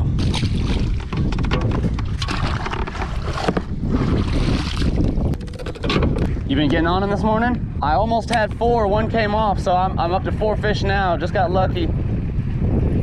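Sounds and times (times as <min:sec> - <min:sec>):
wind buffeting microphone: 0:00.0 - 0:13.0
paddle splashing through water: 0:00.2 - 0:06.1.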